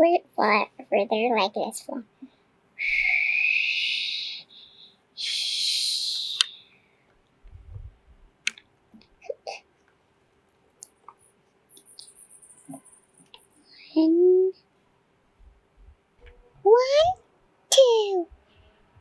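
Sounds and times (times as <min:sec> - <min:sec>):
child making whooshing hisses: 0:02.8 - 0:04.5, 0:05.2 - 0:06.6.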